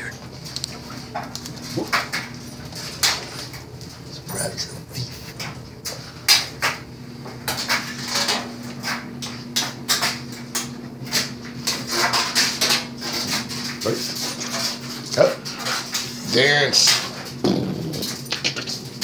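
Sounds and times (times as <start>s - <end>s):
steady low hum: 0.0s - 19.0s
sharp clicks and clatters: 0.4s - 3.9s, 17.9s - 19.0s.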